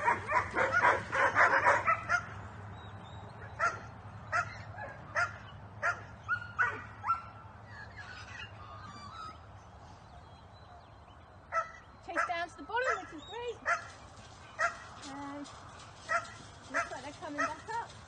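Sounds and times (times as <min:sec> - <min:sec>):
puppies barking and yelping: 0:00.0 - 0:02.4.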